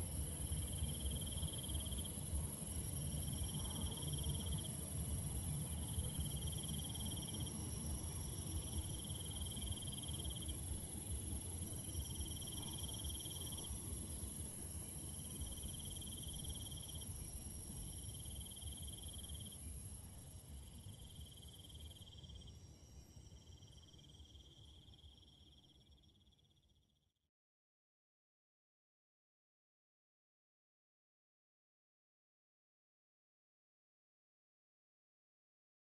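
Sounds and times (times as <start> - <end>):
pulsing insect trill: 0.0 - 26.9
crickets chirping: 0.0 - 27.0.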